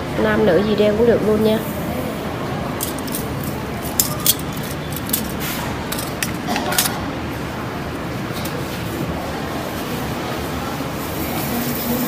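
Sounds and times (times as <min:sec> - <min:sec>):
metal bracelets clinking: 0:02.8 - 0:07.0.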